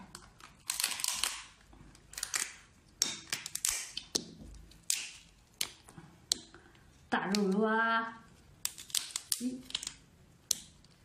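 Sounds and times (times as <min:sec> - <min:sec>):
lobster shell cracking: 0:00.1 - 0:06.5, 0:08.6 - 0:10.7.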